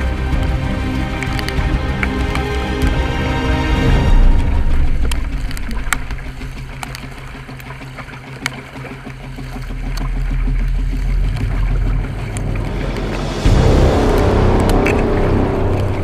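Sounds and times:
low rumble: 0.0 - 16.0
sharp ticks: 0.0 - 16.0
water rushing around kayak: 0.0 - 16.0.

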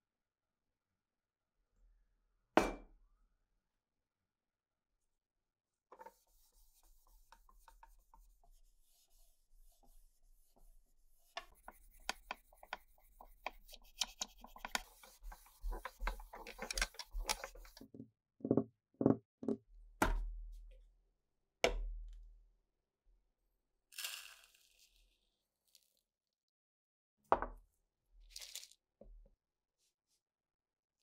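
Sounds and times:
cotton pad rubbing plastic: 6.0 - 17.8.

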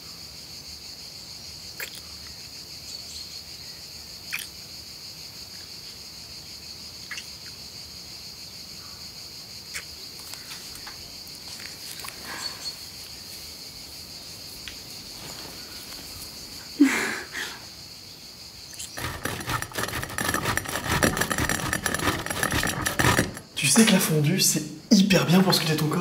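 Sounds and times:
insects chirring: 0.0 - 26.0
cheese grating on metal grater: 19.0 - 23.6.

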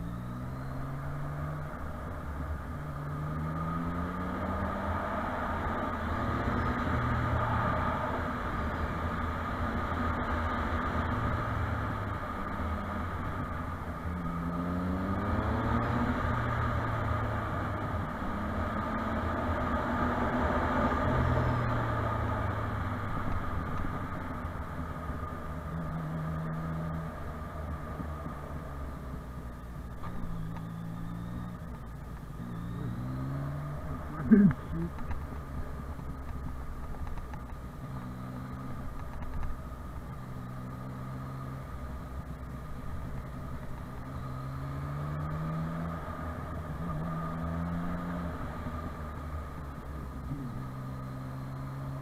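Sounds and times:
motorcycle engine running: 21.7 - 52.0.

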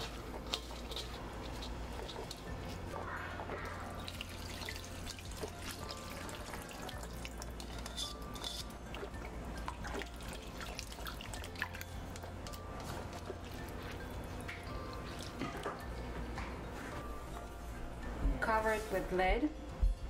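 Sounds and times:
water dripping and trickling: 3.5 - 12.6.

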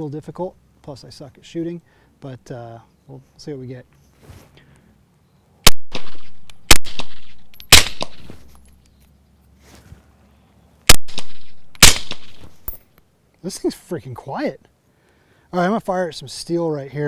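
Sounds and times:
suppressed gunshots: 5.6 - 8.4, 10.9 - 12.6.

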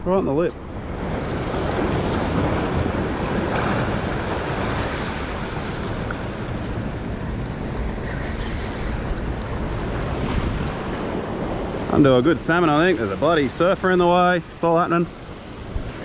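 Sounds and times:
wind buffeting microphone: 0.0 - 13.2
waves washing against rocks: 0.8 - 7.3.

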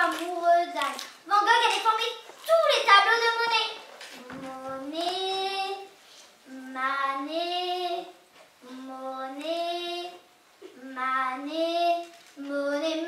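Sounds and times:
girl singing into microphone: 4.1 - 13.0.

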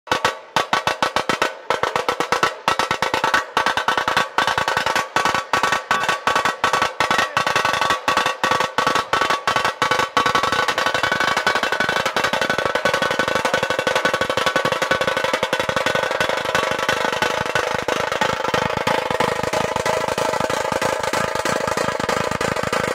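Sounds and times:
dhol and tasha drumming: 0.1 - 22.9.

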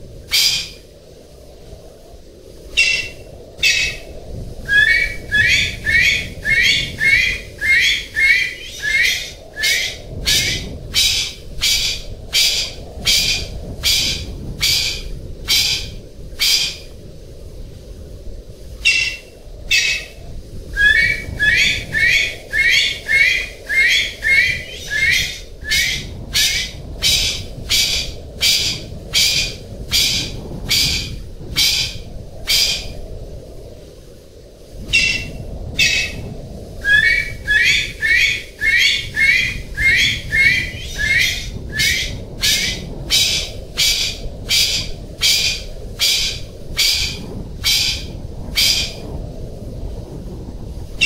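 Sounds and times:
pheasant calling: 0.3 - 0.8, 2.7 - 16.9, 18.8 - 33.0, 34.9 - 36.2, 36.8 - 49.0.

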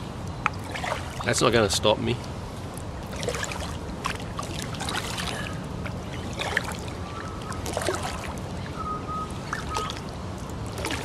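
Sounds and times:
distant traffic hum: 0.0 - 11.0
kayak paddle splashing: 0.5 - 1.4, 2.3 - 11.0
water dripping off paddle: 6.2 - 11.0.

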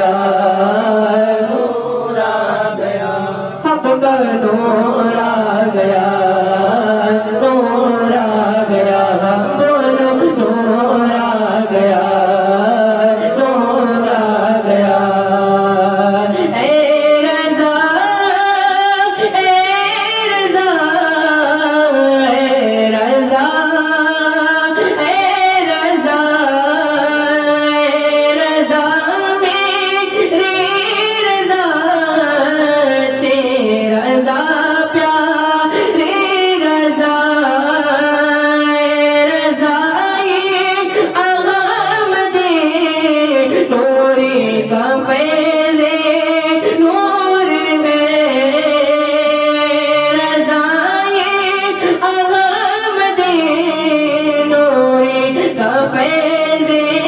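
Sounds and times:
man singing into a microphone: 0.0 - 57.0.

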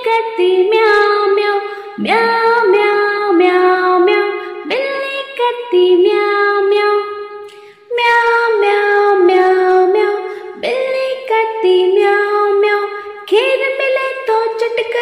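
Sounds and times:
singing: 0.0 - 7.0
children's song music: 0.0 - 15.0.

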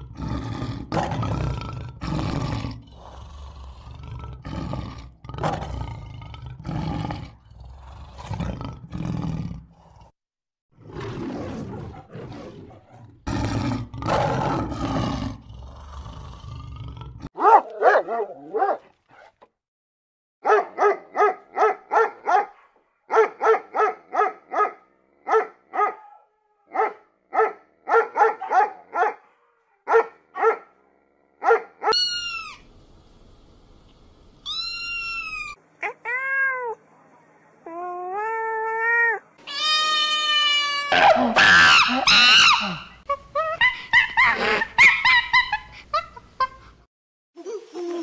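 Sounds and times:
lion roaring: 0.0 - 10.1, 10.8 - 17.3
high-pitched puppy barks: 17.4 - 18.8, 20.4 - 30.7, 31.4 - 32.2
cat meowing: 34.4 - 36.8, 38.8 - 41.0.

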